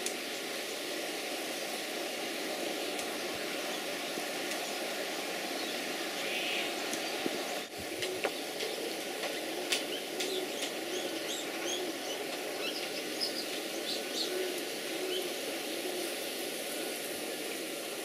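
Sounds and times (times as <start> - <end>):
steady background hiss: 0.0 - 18.0
small birds chirping: 2.6 - 15.4.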